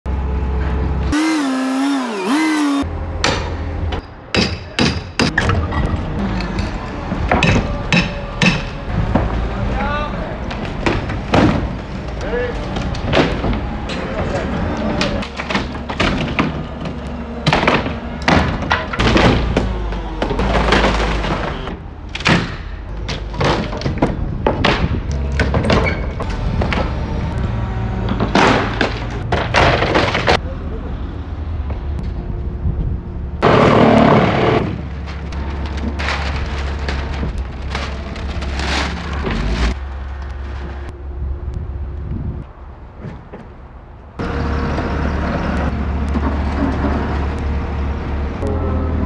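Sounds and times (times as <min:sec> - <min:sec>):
thumps and bangs on wood: 0:10.5 - 0:11.8, 0:15.4 - 0:19.7, 0:22.2 - 0:25.9
boards cracking and clattering: 0:20.3 - 0:25.8, 0:28.2 - 0:30.4, 0:35.0 - 0:39.8.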